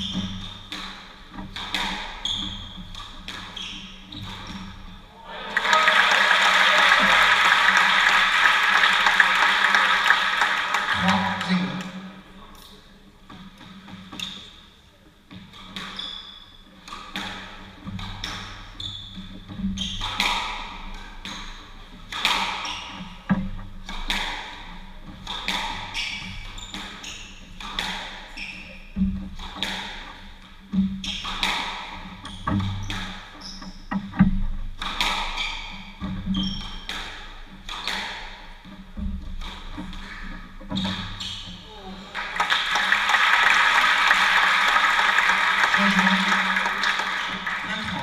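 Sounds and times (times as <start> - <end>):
squash ball hitting rackets and walls: 0.0 - 5.0, 15.3 - 16.0, 16.8 - 41.6.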